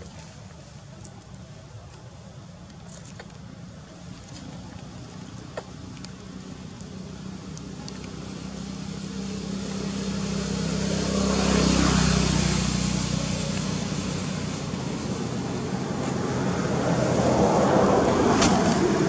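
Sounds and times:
vehicle driving past: 0:07.3 - 0:19.0.

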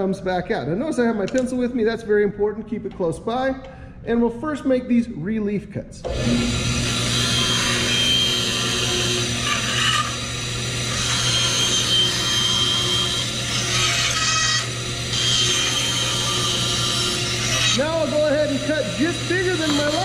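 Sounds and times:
bandsaw motor hum: 0:06.0 - 0:20.0
saw blade cutting wood: 0:06.1 - 0:20.0.

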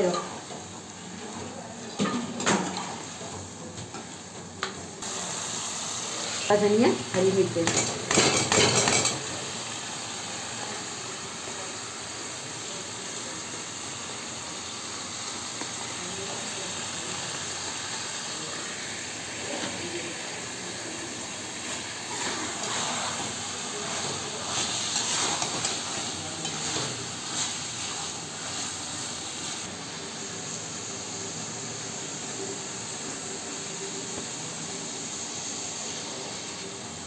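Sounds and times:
curry sizzling in a pot: 0:00.0 - 0:37.0.

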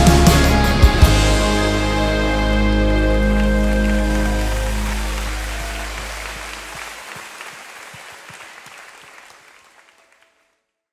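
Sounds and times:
band chord ringing out: 0:00.0 - 0:06.6
congregation applauding: 0:02.6 - 0:10.6.

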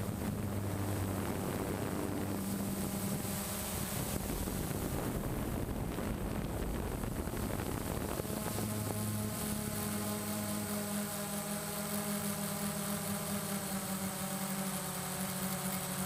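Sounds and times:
wind rushing over microphone: 0:00.0 - 0:12.3
drone propellers humming: 0:00.0 - 0:16.0.

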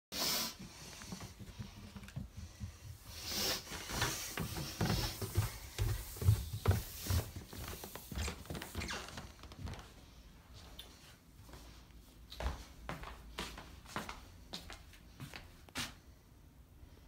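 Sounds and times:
scuffs: 0:00.6 - 0:10.0
footsteps on hardwood floor: 0:00.6 - 0:10.8, 0:11.4 - 0:16.0.

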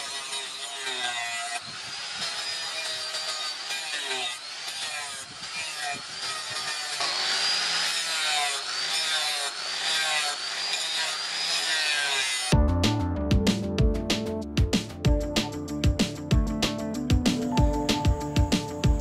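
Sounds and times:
angle grinder grinding steel: 0:00.0 - 0:12.6
music: 0:12.5 - 0:19.0.

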